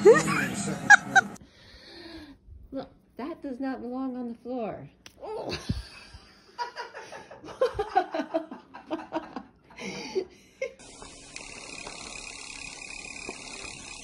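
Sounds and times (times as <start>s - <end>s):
person laughing: 0.0s - 1.4s, 5.4s - 10.8s.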